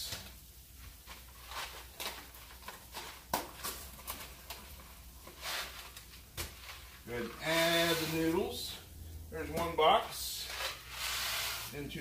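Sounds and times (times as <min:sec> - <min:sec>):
powder pattering: 0:00.0 - 0:08.8.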